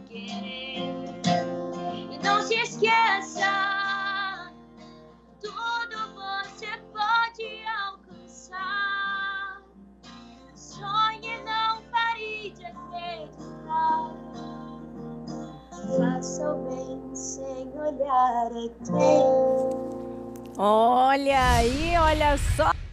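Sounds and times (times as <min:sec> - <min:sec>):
girl singing: 0:00.0 - 0:04.5, 0:05.4 - 0:09.7, 0:10.6 - 0:14.8, 0:15.8 - 0:19.5
acoustic guitar strumming: 0:00.0 - 0:21.2.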